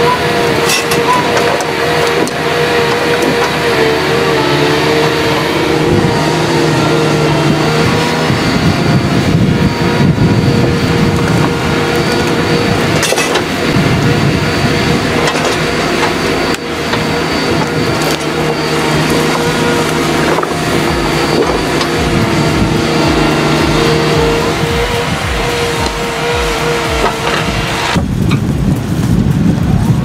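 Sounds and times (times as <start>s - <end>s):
heavy diesel engine running: 0.0s - 29.0s.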